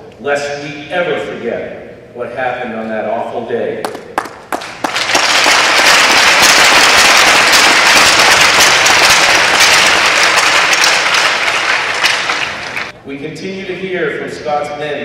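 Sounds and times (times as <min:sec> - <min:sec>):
crowd applauding: 0:03.9 - 0:12.9.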